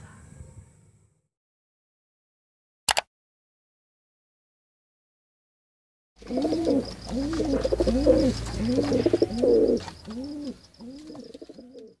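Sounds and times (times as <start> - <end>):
pigeons cooing: 6.2 - 12.0.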